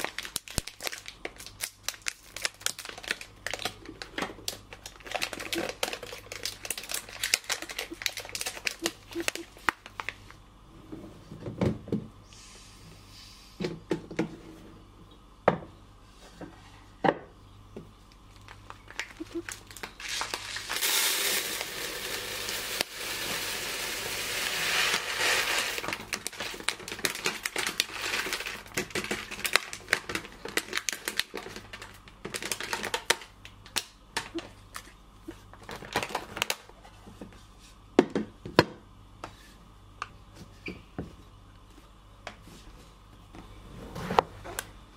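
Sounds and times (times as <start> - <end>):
plastic bag crinkling: 0.0 - 10.3, 18.3 - 34.4, 35.6 - 36.6
rice pouring into plastic container: 20.0 - 28.7.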